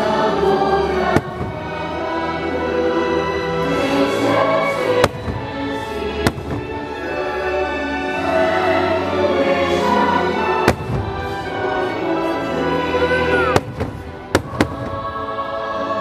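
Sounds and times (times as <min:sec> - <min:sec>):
fireworks bangs: 0:01.0 - 0:02.2, 0:04.9 - 0:07.2, 0:10.6 - 0:11.9, 0:13.4 - 0:15.3.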